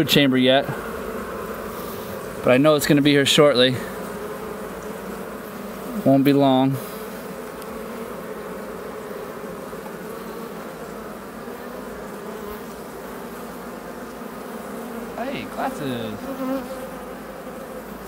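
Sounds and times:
bees buzzing: 0.0 - 18.0
person speaking: 15.2 - 16.3.

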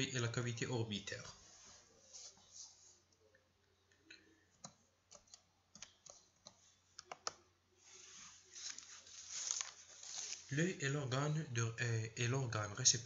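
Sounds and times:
computer keys clicking: 4.6 - 7.4
soft hiss: 7.7 - 11.4.

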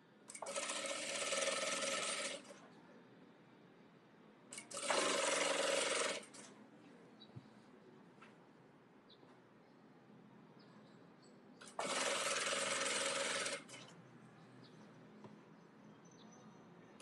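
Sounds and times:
sewing machine stitching: 0.3 - 2.6, 4.5 - 6.5, 11.6 - 13.9.

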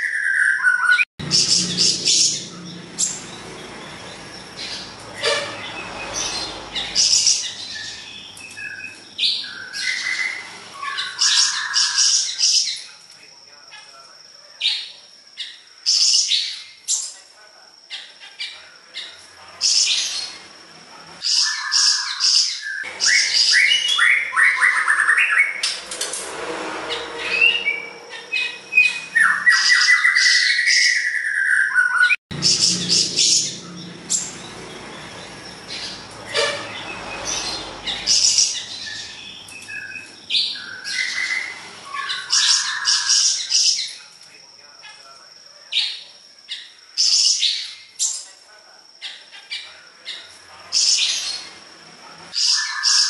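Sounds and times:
songbird singing with trills: 21.2 - 25.6, 27.3 - 44.0, 52.4 - 53.0.

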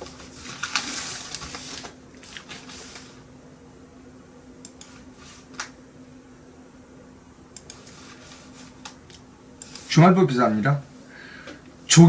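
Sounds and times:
rustling and scraping handling noise: 0.0 - 3.2, 7.8 - 9.0
faint steady hum: 0.0 - 12.0.

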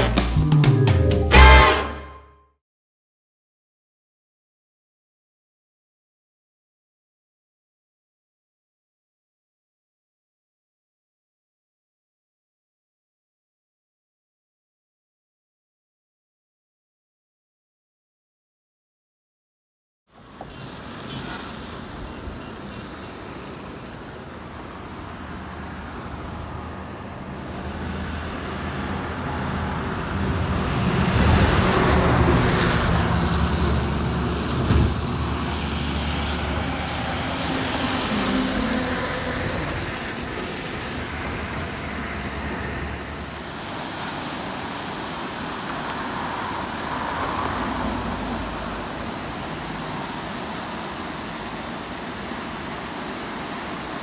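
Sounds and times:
water rushing through gates: 20.1 - 54.0
heavy vehicle engine drone: 22.8 - 44.2.

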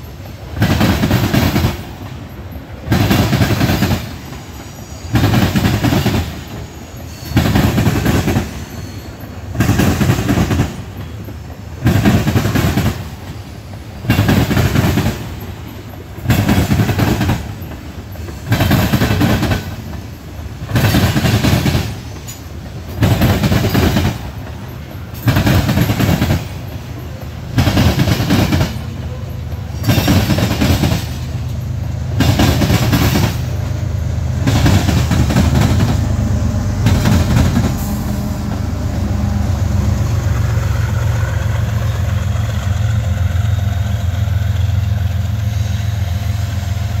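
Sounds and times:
train wheels clattering: 0.0 - 46.3
locomotive engine drone: 24.2 - 47.0.

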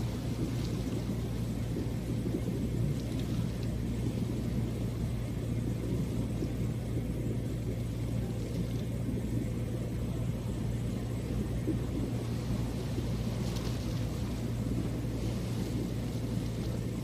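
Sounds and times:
constant hum: 0.0 - 17.0
low rumble: 0.0 - 17.0.

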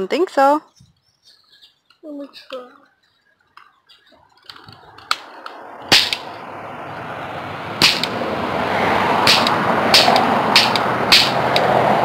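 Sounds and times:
toy cap gun cracks: 4.5 - 6.3, 7.8 - 8.2, 9.3 - 11.7.

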